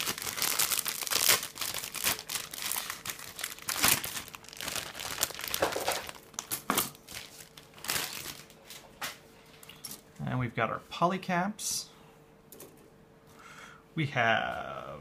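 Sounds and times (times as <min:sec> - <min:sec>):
plastic bags crinkling: 0:00.0 - 0:08.9.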